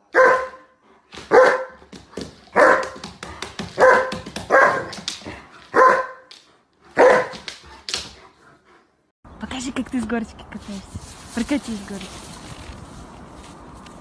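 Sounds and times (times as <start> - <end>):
large dog barking: 0.0 - 1.9, 2.5 - 3.1, 3.7 - 6.3, 6.9 - 7.9.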